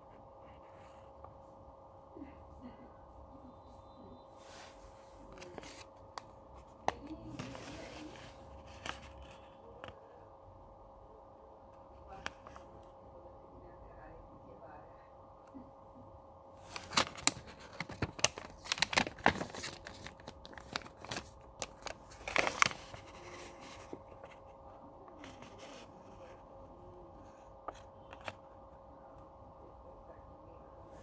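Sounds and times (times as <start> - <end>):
faint steady hum: 0.0 - 31.0
paper rustling and crinkling: 4.5 - 9.6, 16.6 - 26.4.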